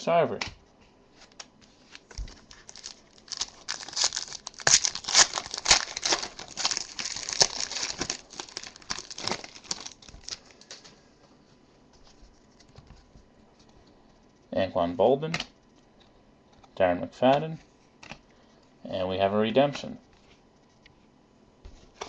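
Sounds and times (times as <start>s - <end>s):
foil wrapper tearing and crinkling: 2.0s - 10.8s.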